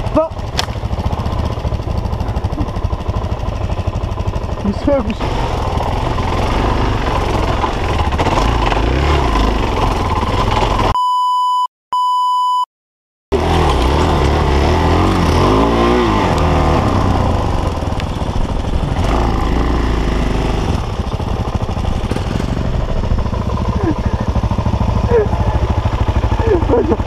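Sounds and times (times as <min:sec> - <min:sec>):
motorcycle engine revving: 0:00.0 - 0:11.0, 0:13.3 - 0:27.0
short electronic beeps: 0:10.9 - 0:12.7.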